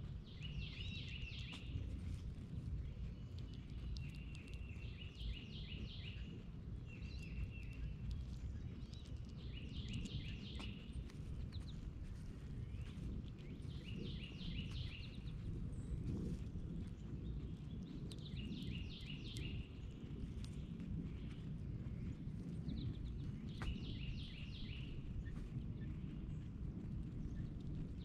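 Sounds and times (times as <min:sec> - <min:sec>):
low background rumble: 0:00.0 - 0:28.0
songbird singing downslurred notes: 0:00.3 - 0:01.7, 0:03.1 - 0:08.0, 0:08.8 - 0:11.8, 0:13.5 - 0:15.3, 0:17.4 - 0:20.0, 0:22.7 - 0:25.0.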